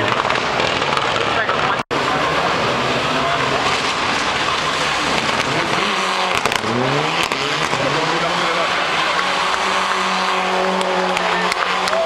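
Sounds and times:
car engine revving hard: 0:01.9 - 0:12.0
sharp exhaust cracks: 0:03.0 - 0:12.0.

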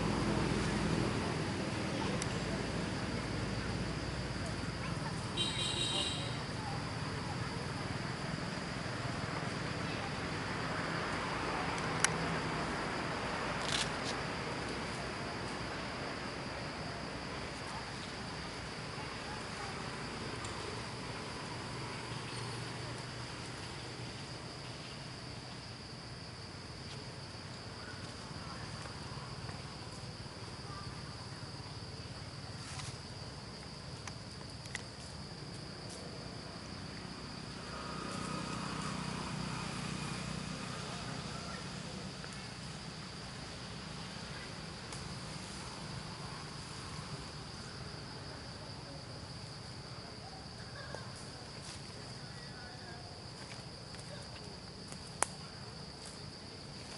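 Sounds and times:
insects droning: 0:00.0 - 0:56.9
faint clicks: 0:54.9 - 0:55.4.

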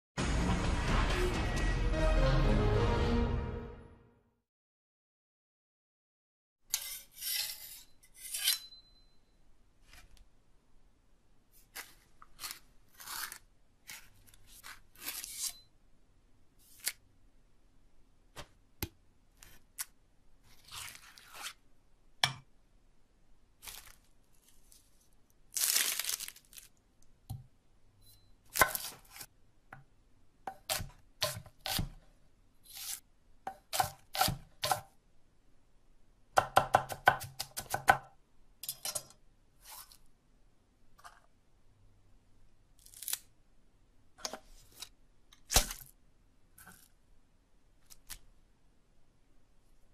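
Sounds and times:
knife sharpening strokes: 0:06.7 - 0:09.0, 0:15.0 - 0:15.7
knife chopping on wooden block: 0:30.5 - 0:32.0, 0:33.5 - 0:34.9, 0:36.4 - 0:38.1.

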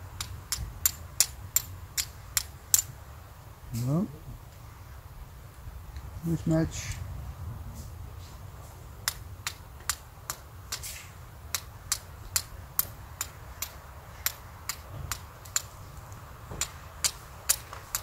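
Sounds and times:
fire striker clicking on stone: 0:00.2 - 0:02.9, 0:09.0 - 0:18.0.

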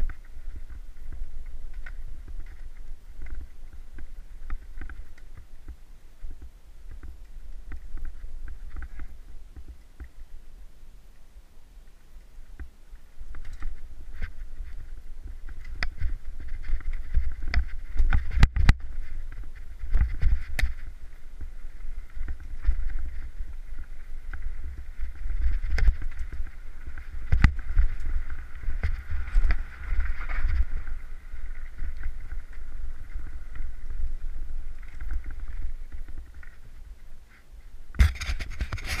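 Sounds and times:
wind rumble on microphone: 0:00.0 - 0:39.0
bike knocks and rattles: 0:13.3 - 0:34.0.

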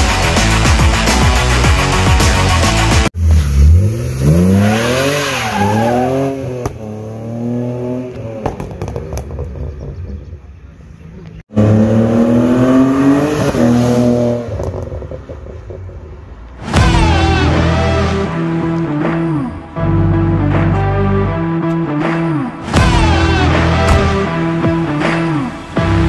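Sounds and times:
car engine accelerating: 0:01.2 - 0:19.3.

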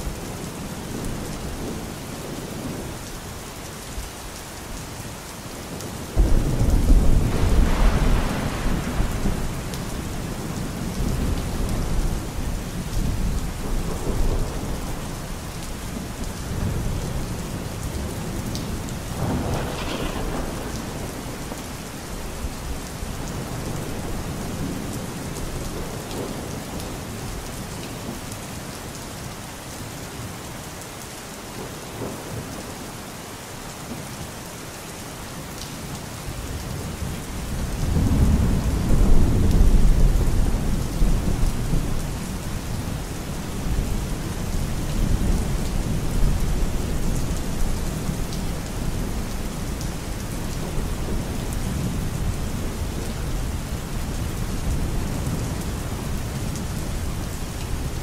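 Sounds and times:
steady rain: 0:00.0 - 0:58.0
thunder rumbling: 0:06.1 - 0:26.8.

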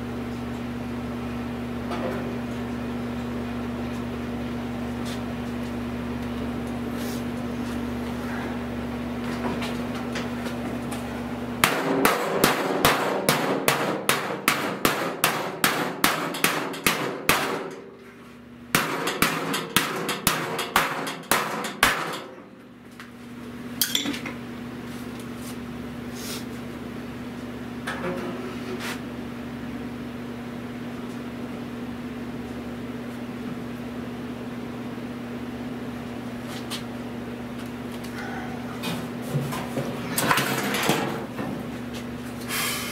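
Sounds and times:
hammer striking steel: 0:11.6 - 0:17.8, 0:18.8 - 0:22.3.

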